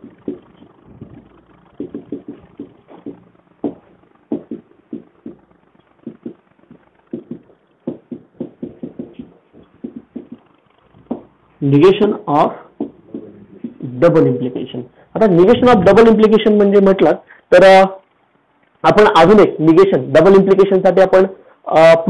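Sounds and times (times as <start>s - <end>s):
marker writing on whiteboard: 0.0s - 11.3s, 12.8s - 14.0s.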